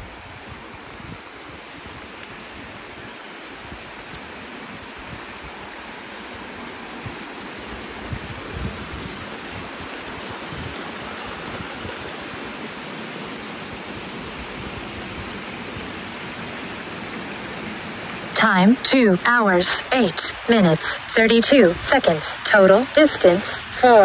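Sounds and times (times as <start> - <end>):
creek water rushing over rocks: 0.0 - 24.0
wind bumps on microphone: 7.0 - 12.4.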